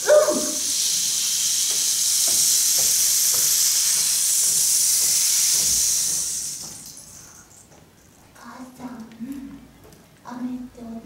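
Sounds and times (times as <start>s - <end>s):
person calling out: 0.0s - 0.6s
rain hiss: 0.0s - 7.7s.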